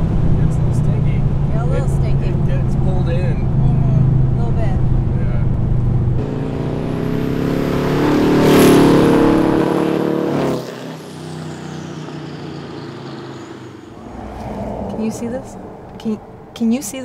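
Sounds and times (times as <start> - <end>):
car engine running under power: 0.0 - 17.0.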